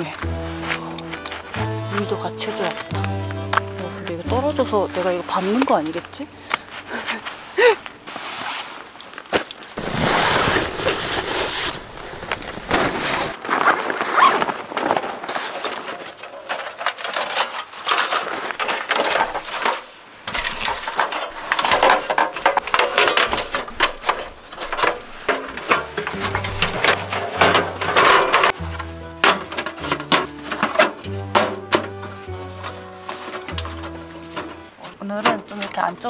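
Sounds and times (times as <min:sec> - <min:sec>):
dense rustling: 0:00.0 - 0:16.0, 0:17.4 - 0:36.0
zipper sounds: 0:09.8 - 0:14.5
metal panels clinking and scraping: 0:15.1 - 0:36.0.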